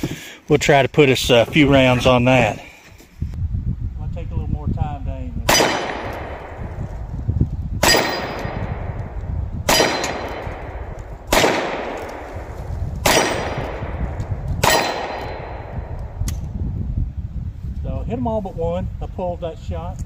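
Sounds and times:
revolver shots echoing: 0:05.5 - 0:06.7, 0:07.8 - 0:16.2
bullets ringing on steel target: 0:07.8 - 0:08.7, 0:09.7 - 0:10.6, 0:14.6 - 0:15.6.

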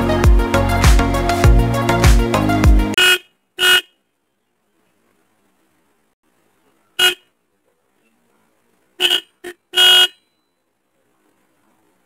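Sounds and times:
electric horn honks: 0:09.0 - 0:10.3.

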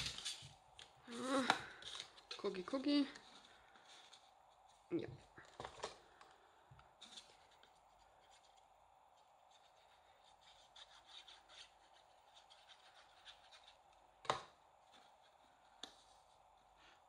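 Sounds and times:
paper scratching and rubbing: 0:00.0 - 0:00.6, 0:07.0 - 0:14.0.

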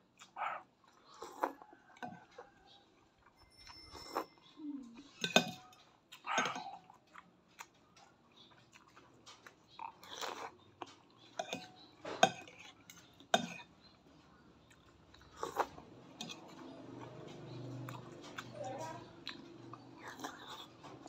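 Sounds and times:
chewing: 0:00.0 - 0:21.0
slurping: 0:01.0 - 0:01.7, 0:15.2 - 0:21.0
cutlery clinking on ceramic bowl: 0:03.4 - 0:07.0, 0:11.3 - 0:13.7, 0:16.2 - 0:18.5.

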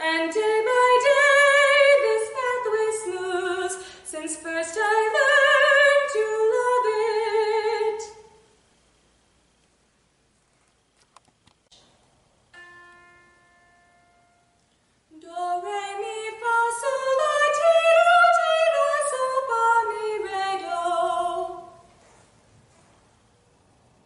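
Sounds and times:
woman singing a scale: 0:00.0 - 0:08.2, 0:15.1 - 0:21.8.

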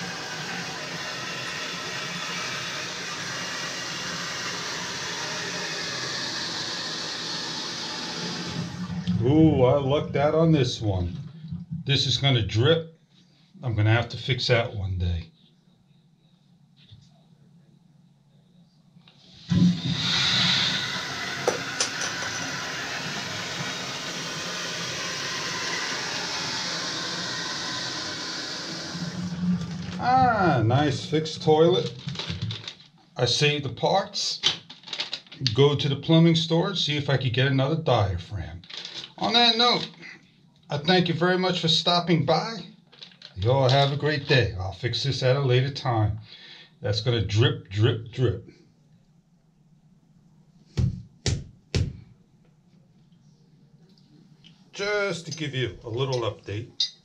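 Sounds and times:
water rushing through toilet valve: 0:00.0 - 0:12.3, 0:19.4 - 0:32.5.

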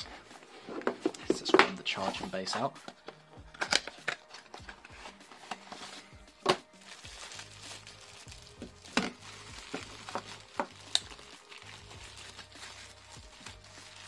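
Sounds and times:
wrapping crinkling: 0:06.8 - 0:14.0.

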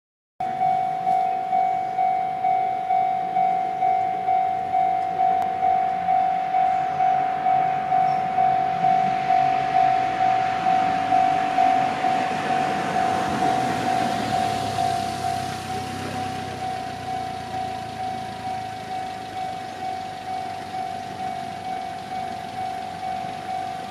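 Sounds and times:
level crossing bell dinging: 0:00.4 - 0:23.9
rushing noise: 0:05.6 - 0:19.4.

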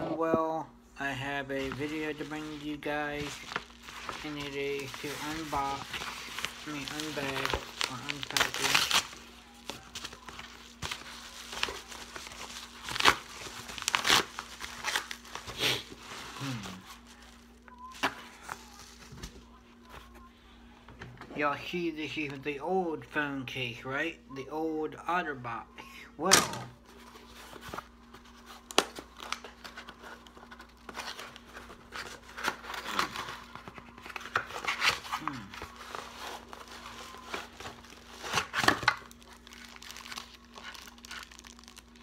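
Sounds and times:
packaging crinkling: 0:01.6 - 0:20.0, 0:26.9 - 0:42.0.

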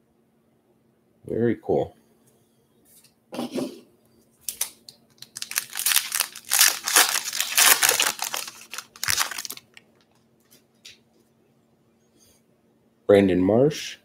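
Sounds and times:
foil wrapper crinkling and tearing: 0:04.5 - 0:10.2.

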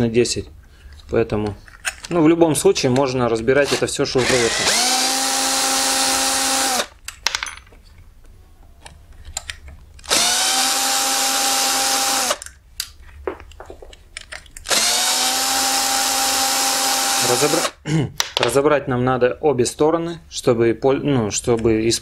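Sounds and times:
drill motor whine: 0:04.2 - 0:06.9, 0:10.1 - 0:12.4, 0:14.7 - 0:17.8.

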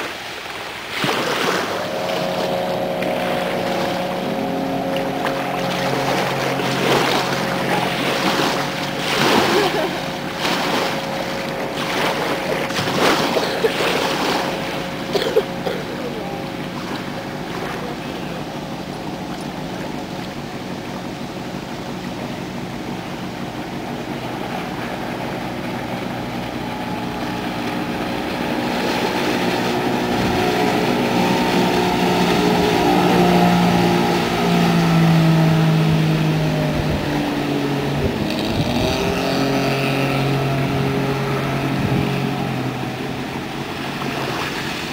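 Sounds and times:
motorboat engine drone: 0:00.0 - 0:44.9
rushing water: 0:00.0 - 0:44.9
speedboat engine passing: 0:00.0 - 0:44.9
wind: 0:00.0 - 0:44.9.

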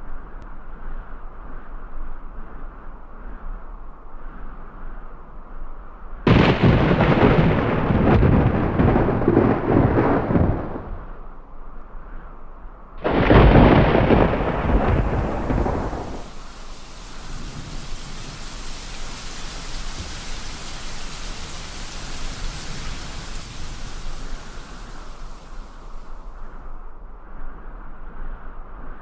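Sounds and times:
rain hissing: 0:06.3 - 0:11.1, 0:13.0 - 0:26.6
thunderclap rumbling: 0:06.3 - 0:11.2, 0:13.0 - 0:26.1.

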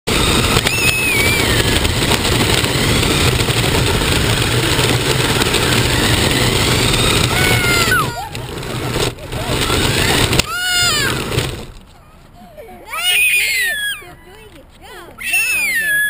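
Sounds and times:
toy car motor whine: 0:00.1 - 0:11.7, 0:15.2 - 0:16.0
tyres rumbling on pavement: 0:00.1 - 0:16.0.

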